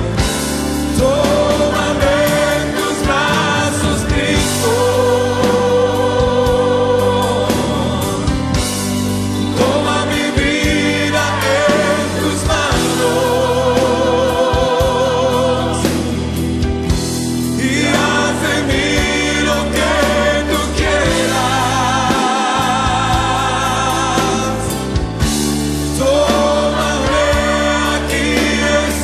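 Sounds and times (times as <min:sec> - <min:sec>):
instrumental backing: 0:00.0 - 0:29.0
voices singing worship song: 0:00.0 - 0:29.0.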